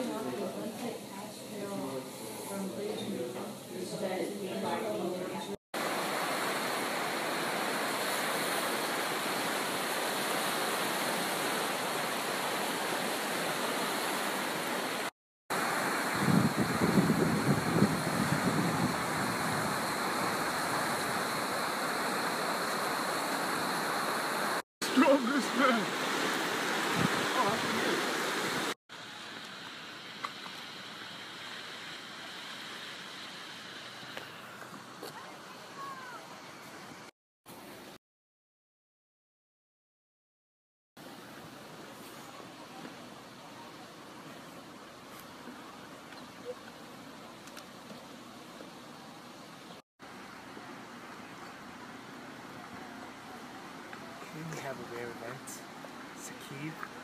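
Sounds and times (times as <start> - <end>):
outdoor background hiss: 0.0 - 38.0, 41.0 - 57.0
small waves lapping: 5.8 - 28.8
stream rushing over rocks: 5.8 - 36.4, 41.0 - 57.0
wind on microphone: 15.7 - 21.6, 26.8 - 28.7.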